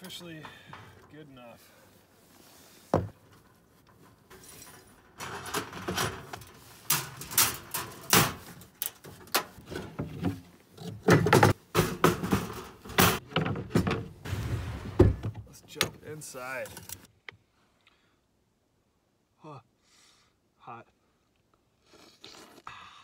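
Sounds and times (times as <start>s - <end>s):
metal clanks and rattles: 2.9s - 17.1s.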